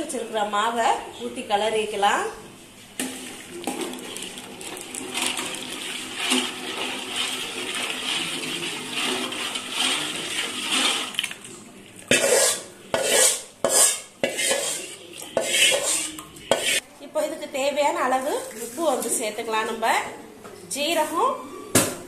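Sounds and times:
ladle scraping a metal pot: 0:03.1 - 0:11.4, 0:12.0 - 0:16.8
batter swishing in water: 0:03.2 - 0:12.6.

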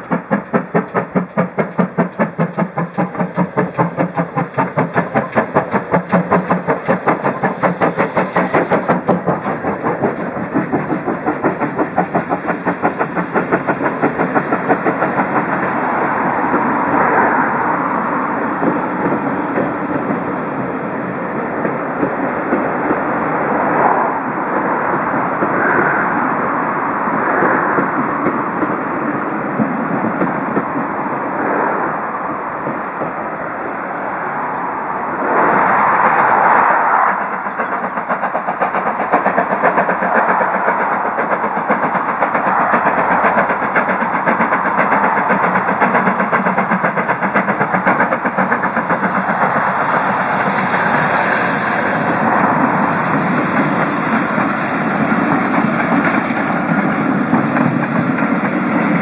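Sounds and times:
steam hissing: 0:00.0 - 0:23.8, 0:35.5 - 0:59.0
steam locomotive exhaust beats: 0:00.0 - 0:31.5, 0:34.8 - 0:59.0
train rumbling past: 0:00.0 - 0:59.0.

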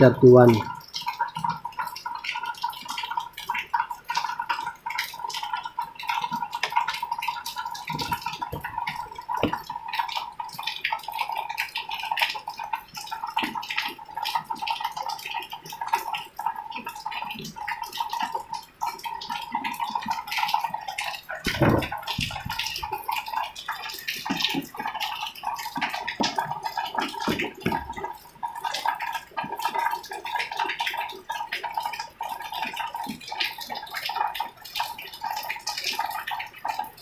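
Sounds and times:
low thump: 0:21.5 - 0:22.7.

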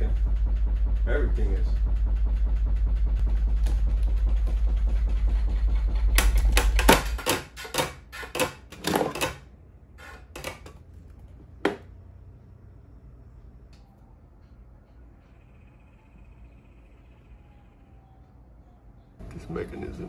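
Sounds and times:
deep pulsing rumble: 0:00.0 - 0:07.3, 0:10.8 - 0:20.0
loud clattering knocks: 0:00.0 - 0:10.9.

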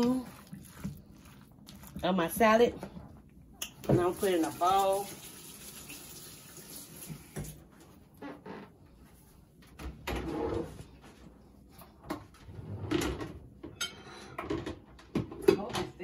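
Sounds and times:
kitchenware clattering: 0:13.0 - 0:16.0.

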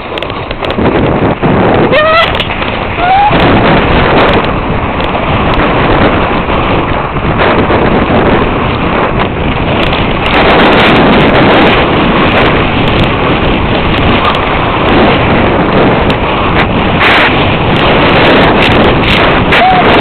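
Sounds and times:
sled sliding on snow: 0:00.0 - 0:20.0
wind buffeting microphone: 0:00.0 - 0:20.0.

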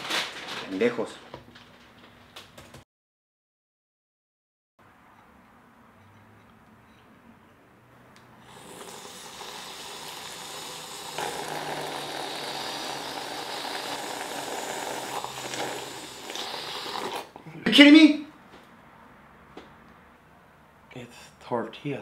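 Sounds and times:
slurping soup from a spoon: 0:08.4 - 0:17.4.

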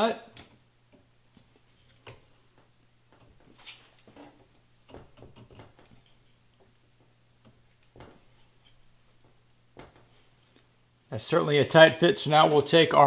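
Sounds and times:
metal knocks: 0:04.8 - 0:07.1.

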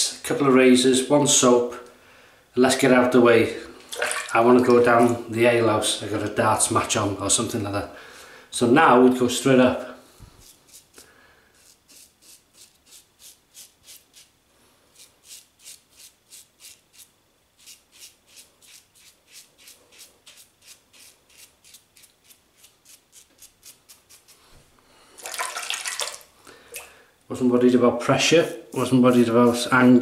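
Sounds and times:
razor scraping stubble: 0:10.4 - 0:11.0, 0:11.6 - 0:14.3, 0:14.9 - 0:24.5.

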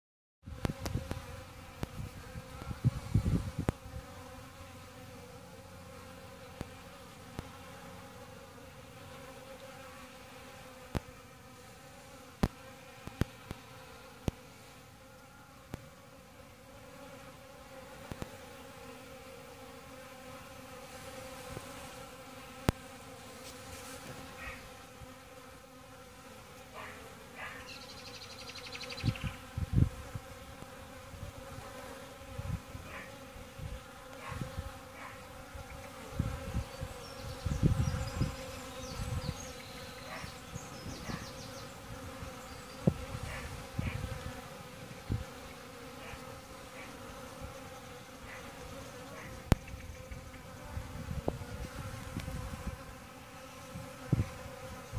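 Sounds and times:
bees buzzing: 0:00.5 - 0:54.9.

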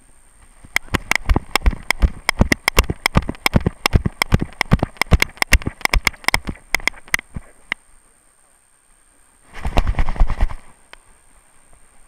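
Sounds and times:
camera knocking and clicking: 0:00.7 - 0:07.5.

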